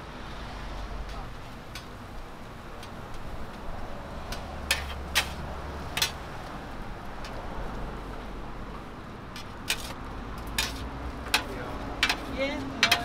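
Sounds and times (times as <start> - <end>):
metal scrapers clanking on griddle: 4.3 - 6.2, 9.4 - 13.0.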